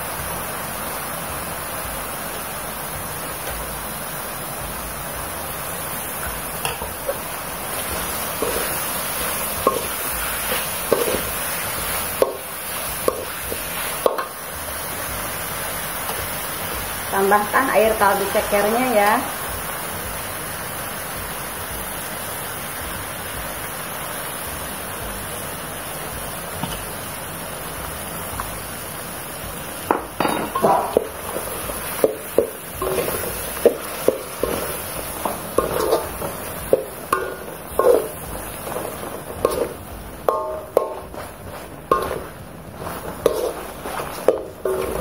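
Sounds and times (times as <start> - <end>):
broth simmering with hiss: 0.0 - 45.0
metal ladle scraping wok: 6.6 - 14.4, 30.3 - 45.0.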